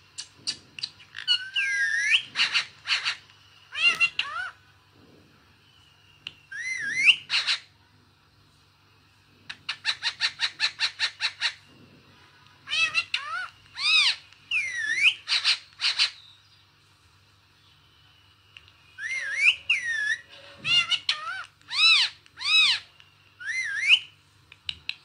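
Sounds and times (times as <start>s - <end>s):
faint low hum: 0.0s - 25.0s
parakeet screeching: 0.8s - 4.6s, 6.5s - 7.8s, 9.5s - 11.7s, 12.6s - 16.2s, 19.0s - 24.1s.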